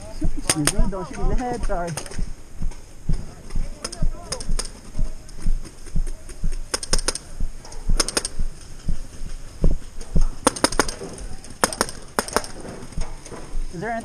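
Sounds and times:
paintball markers firing: 3.8 - 4.9, 6.5 - 7.3, 7.9 - 8.6, 10.4 - 12.9.

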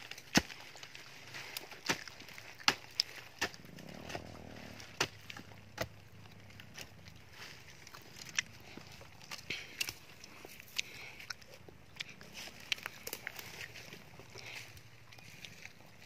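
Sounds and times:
hoe chopping into soil: 1.5 - 6.0.

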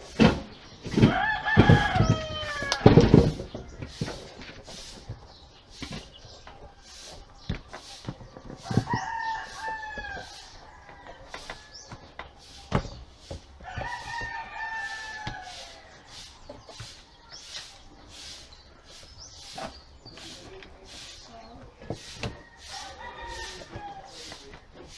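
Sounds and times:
rooster crowing: 1.0 - 3.1, 8.6 - 12.0, 13.6 - 15.9, 22.2 - 24.3.

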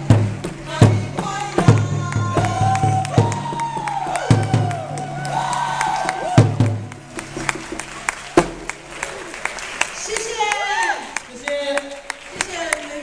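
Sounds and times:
big drum beats: 0.0 - 9.6.

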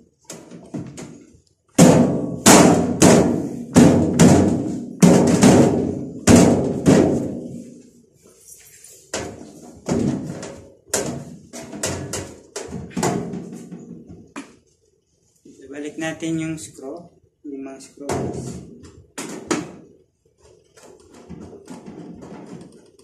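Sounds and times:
sheet metal thunks and bangs: 0.4 - 7.8, 9.1 - 14.1, 18.0 - 20.0, 20.8 - 22.8.

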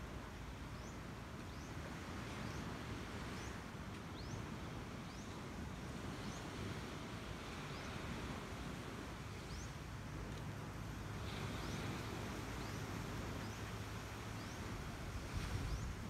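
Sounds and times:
low outdoor rumble: 7.1 - 16.0.

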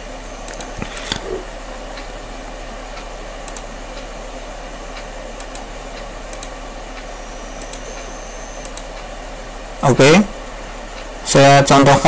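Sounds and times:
microphone hiss and hum: 0.0 - 12.0
computer mouse clicks: 0.5 - 1.4, 3.5 - 3.7, 5.4 - 5.7, 6.3 - 6.6, 7.6 - 8.0, 8.6 - 9.0.

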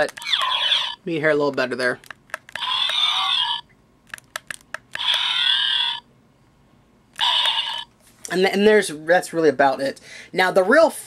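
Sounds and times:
toy electronic warbling tones: 0.2 - 1.0, 2.6 - 3.7, 5.0 - 6.1, 7.2 - 7.9.

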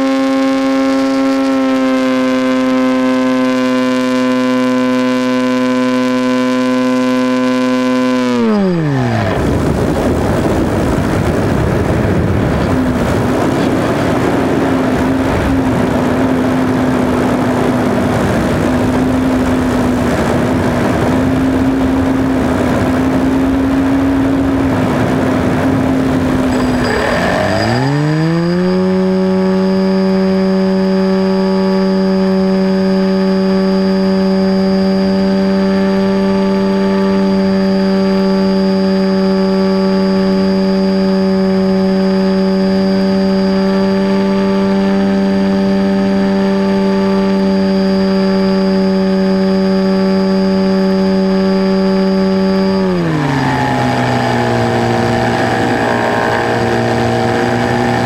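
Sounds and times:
electric motor and propeller: 0.0 - 58.0.

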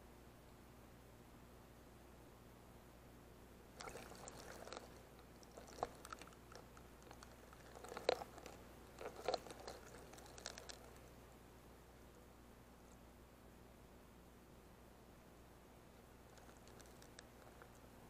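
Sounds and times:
underwater crackling and clicking: 3.8 - 11.1, 16.3 - 17.9.

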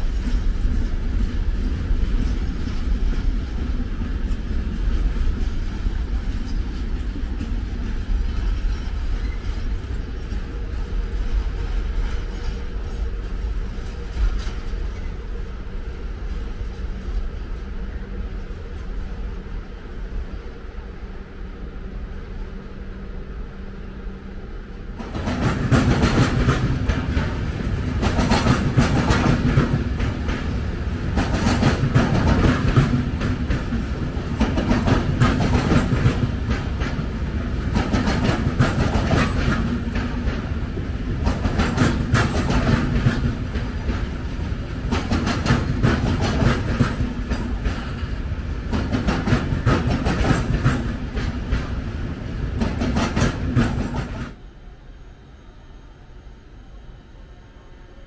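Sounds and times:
train wheels clattering over rails: 0.0 - 15.4, 25.0 - 54.4.

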